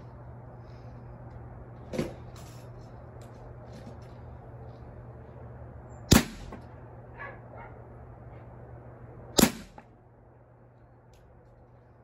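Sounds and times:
air rifle shots: 0:06.1 - 0:06.7, 0:09.4 - 0:09.9.

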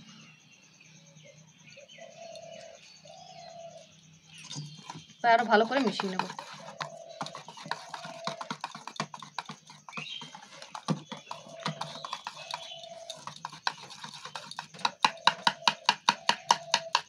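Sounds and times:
whisk clicking against steel bowl: 0:05.4 - 0:17.0.

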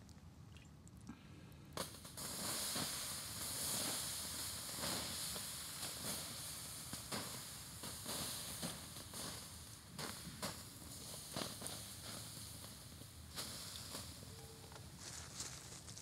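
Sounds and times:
water hissing on hot embers: 0:01.8 - 0:14.4.

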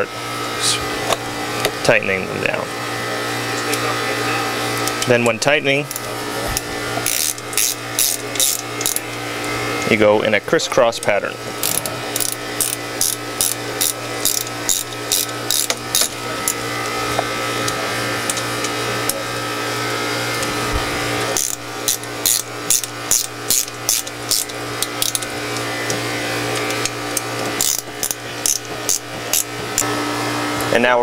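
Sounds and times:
steady low hum: 0:00.0 - 0:31.0
ratchet wrench clicking: 0:07.0 - 0:09.1, 0:11.6 - 0:16.6, 0:21.4 - 0:25.3, 0:26.5 - 0:29.8.

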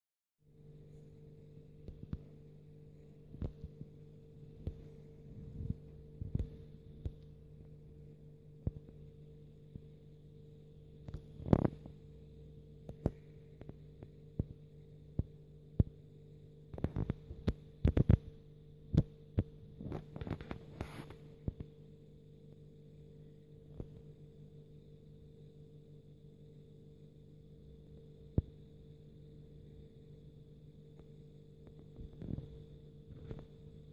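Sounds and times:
electrical hum: 0:00.4 - 0:33.9.

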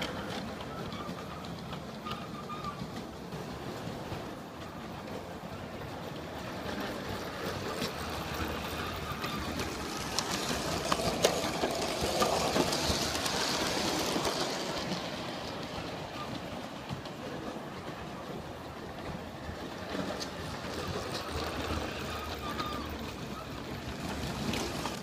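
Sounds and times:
model train rolling rumble: 0:00.0 - 0:25.0
wheel clicks: 0:06.6 - 0:17.4.

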